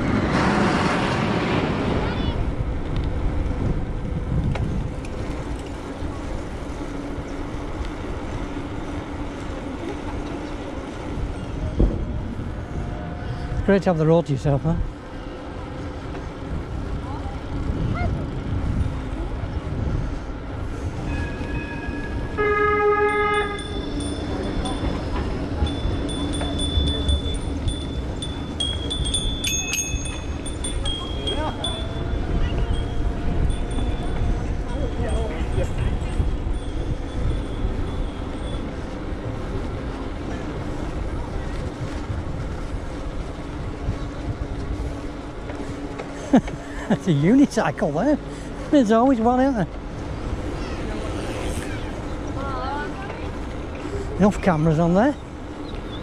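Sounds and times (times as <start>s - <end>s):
wind on microphone: 0.0s - 13.7s, 14.8s - 46.2s
bicycle road noise: 0.0s - 56.0s
bicycle bells ringing: 21.0s - 40.1s.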